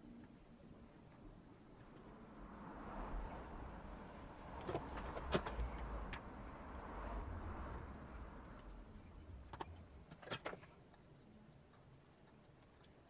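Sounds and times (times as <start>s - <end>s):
faint low rumble and hiss: 5.5s - 13.0s.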